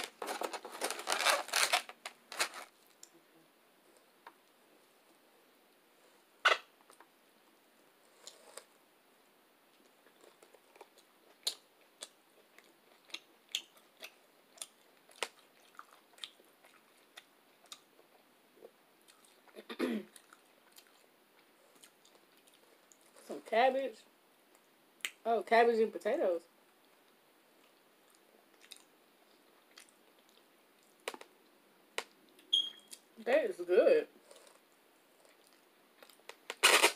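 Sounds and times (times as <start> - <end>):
close chewing: 9.7 - 18.2, 19.0 - 23.2, 27.6 - 31.0.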